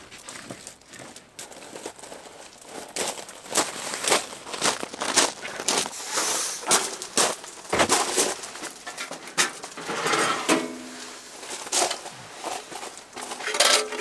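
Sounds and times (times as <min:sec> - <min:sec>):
hard items clinking and knocking: 0:13.0 - 0:14.0.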